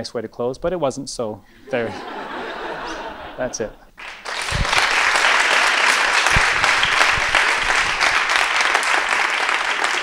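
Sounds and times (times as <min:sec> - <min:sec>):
audience applauding: 0:04.0 - 0:10.0
low thumps: 0:06.2 - 0:08.4.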